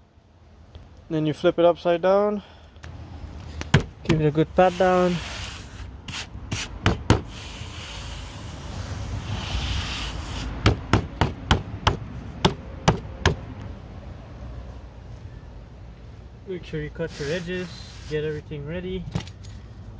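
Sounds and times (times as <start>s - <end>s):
hand rubbing carpet: 4.6s - 10.6s, 16.9s - 18.5s.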